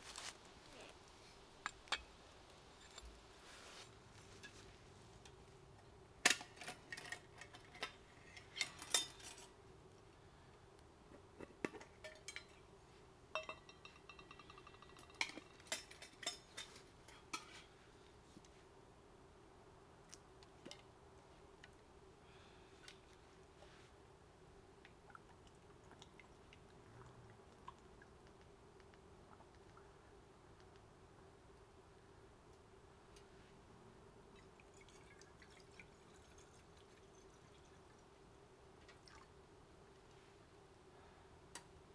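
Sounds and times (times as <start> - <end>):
metal cookware clinking: 11.9 - 12.6, 13.4 - 17.5.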